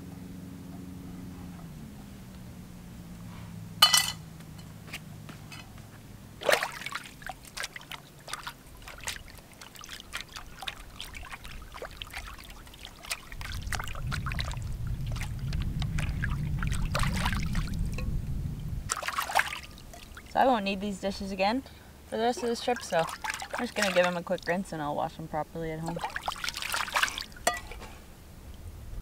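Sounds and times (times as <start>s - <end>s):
water splashing: 3.0s - 18.1s, 18.9s - 27.8s
dishes clinking: 3.8s - 4.2s, 27.4s - 27.9s
water pouring off metal plate: 6.4s - 18.0s, 18.9s - 20.4s, 22.3s - 24.6s, 25.9s - 27.6s
low rumble: 13.3s - 19.0s.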